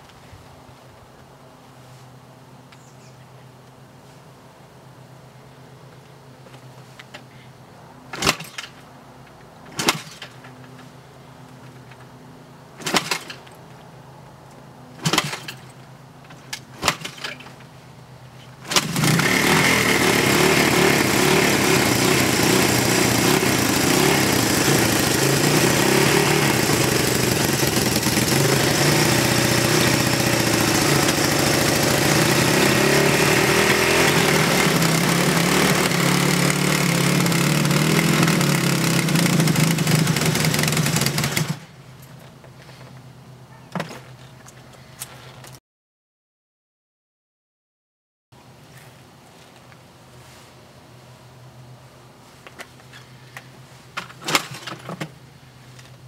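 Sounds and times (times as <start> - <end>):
motorcycle engine kick-started: 12.8 - 13.5, 15.0 - 15.8, 16.8 - 17.5, 18.6 - 41.8, 54.0 - 55.2.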